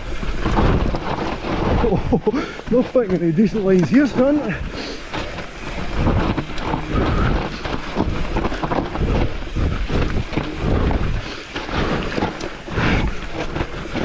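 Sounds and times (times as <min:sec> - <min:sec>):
bike knocks and rattles: 0:00.0 - 0:14.0
tyres rumbling on rough trail: 0:00.0 - 0:14.0
wind buffeting microphone: 0:00.0 - 0:14.0.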